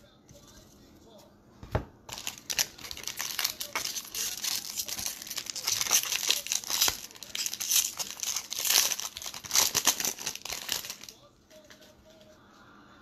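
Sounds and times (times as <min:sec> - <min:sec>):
foil wrapper crinkling: 0:02.1 - 0:12.2.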